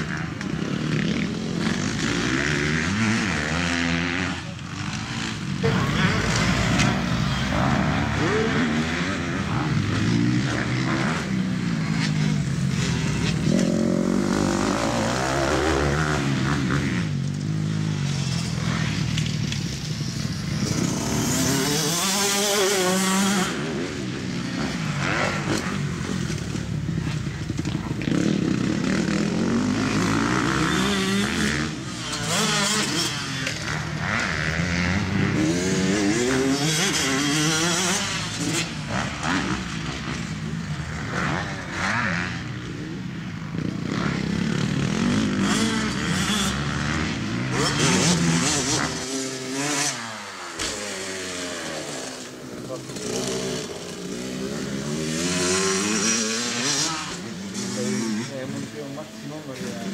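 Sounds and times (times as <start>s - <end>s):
motocross bike engine revving: 0.0s - 59.9s.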